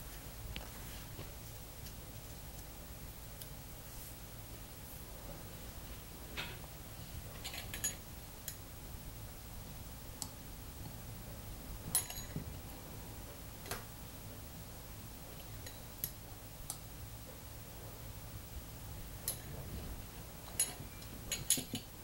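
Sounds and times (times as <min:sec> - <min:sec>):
low room hum: 0:00.0 - 0:22.0
faint clicks and light taps: 0:00.5 - 0:02.8, 0:10.2 - 0:11.0.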